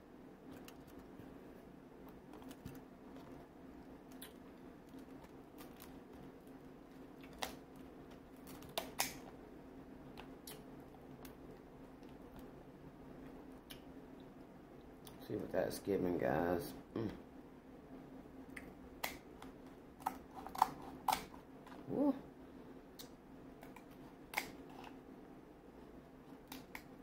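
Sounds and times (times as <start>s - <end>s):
faint steady hum: 0.0s - 27.0s
scissors cracking crab shell: 8.4s - 9.3s, 19.0s - 21.4s, 23.0s - 24.6s, 26.4s - 26.9s.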